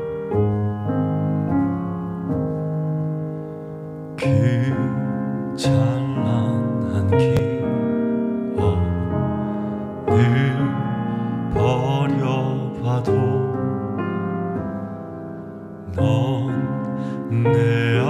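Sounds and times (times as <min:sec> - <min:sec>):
piano accompaniment: 0:00.0 - 0:18.0
man singing a slow ballad: 0:04.2 - 0:14.6, 0:15.8 - 0:18.0.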